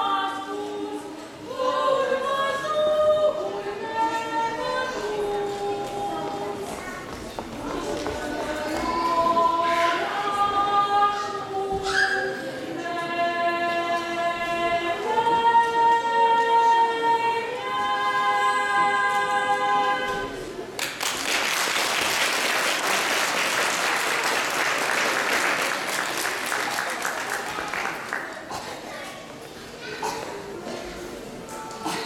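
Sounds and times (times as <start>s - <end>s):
two women singing: 0.0s - 6.7s, 7.4s - 20.6s
audience applause: 20.8s - 28.5s.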